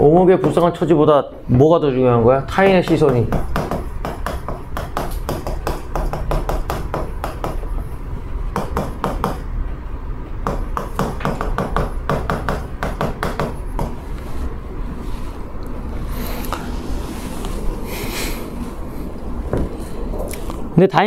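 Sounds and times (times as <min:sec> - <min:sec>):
chalk tapping on chalkboard: 0:00.4 - 0:00.7, 0:02.6 - 0:07.7, 0:08.5 - 0:09.4, 0:10.4 - 0:14.2.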